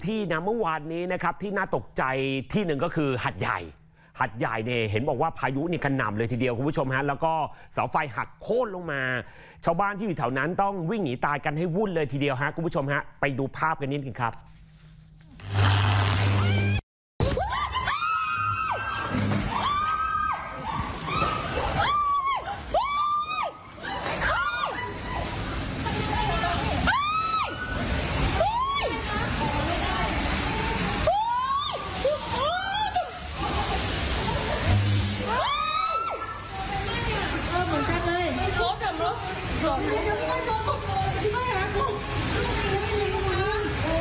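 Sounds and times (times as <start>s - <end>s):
burst of noise with low hum: 15.4s - 16.8s, 33.2s - 39.8s
people screaming: 16.3s - 29.2s, 31.0s - 36.7s
rain: 17.5s - 44.0s
low hum: 34.5s - 36.0s.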